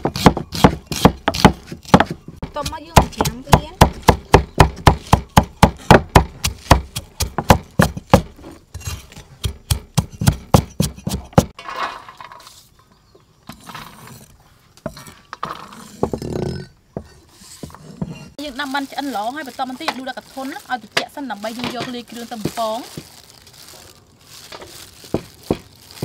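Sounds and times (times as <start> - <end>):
cleaver chopping on wooden block: 0.0 - 8.4, 9.4 - 11.6.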